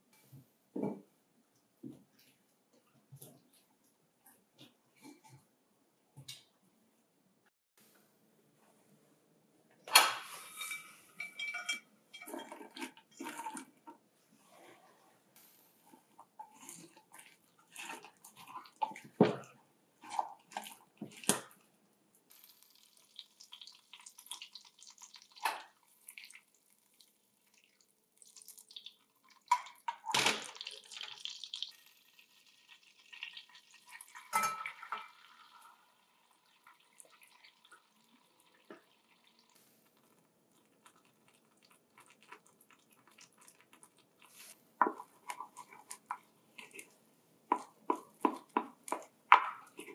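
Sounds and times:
butter sizzling in saucepan: 22.3 - 29.8, 30.4 - 40.2.

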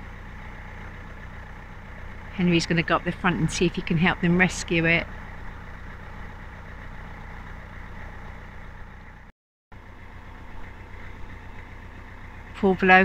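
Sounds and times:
diesel engine chugging: 0.0 - 13.0.

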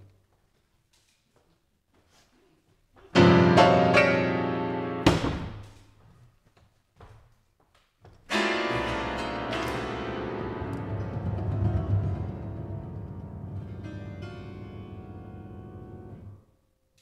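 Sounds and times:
heavy low piano strike: 8.7 - 16.2.

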